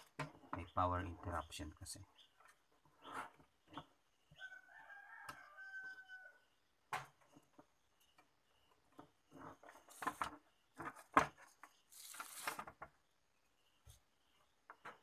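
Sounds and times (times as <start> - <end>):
plastic scraping rustle: 9.3 - 12.9.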